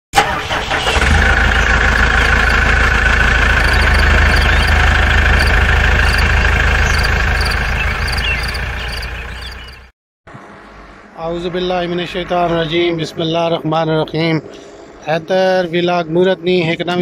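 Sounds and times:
tractor engine running: 0.2 - 9.9.

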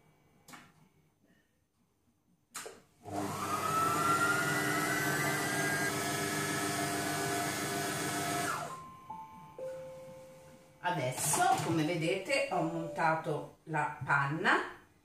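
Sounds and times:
food processor motor whining: 3.0 - 8.7.

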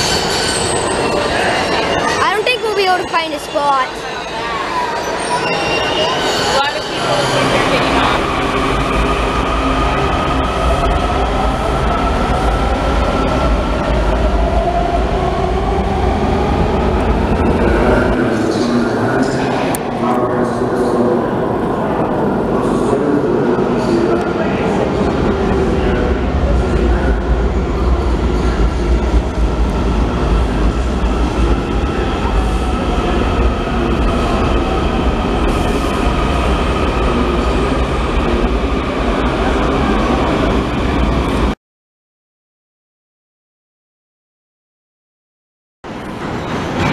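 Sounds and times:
train wheels rumbling on rails: 6.4 - 41.5.

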